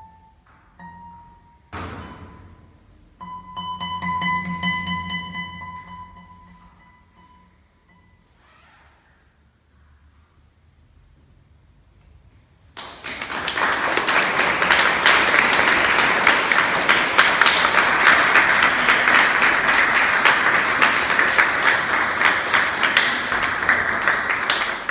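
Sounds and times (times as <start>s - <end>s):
audience applauding: 12.8s - 24.9s.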